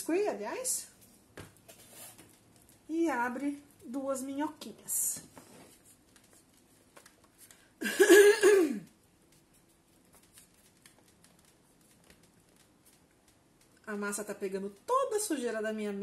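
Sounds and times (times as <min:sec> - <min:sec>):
hands working clay clicks: 0:08.9 - 0:15.4.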